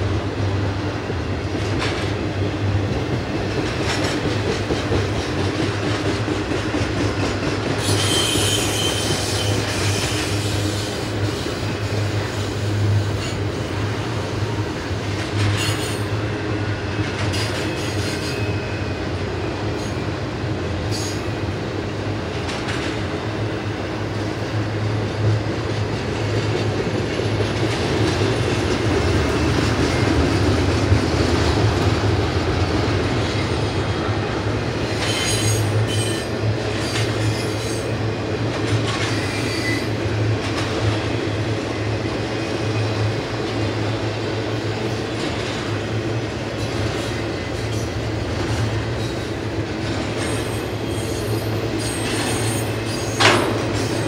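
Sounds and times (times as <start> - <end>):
train wheels rumbling on rails: 0.0 - 54.0
metallic screeches and clanks: 7.8 - 11.0, 35.0 - 36.3, 39.0 - 39.9.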